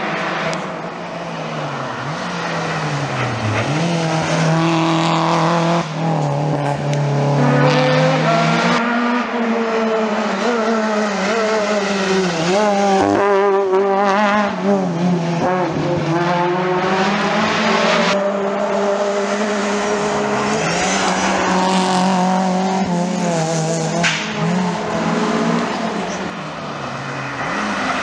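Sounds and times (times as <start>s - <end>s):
rally car engines revving: 0.0s - 28.0s.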